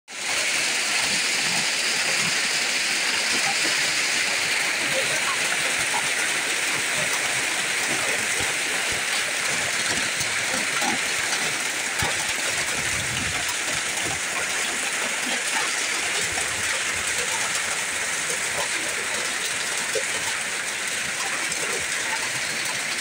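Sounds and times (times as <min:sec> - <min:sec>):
heavy rain and hail: 0:00.1 - 0:23.0.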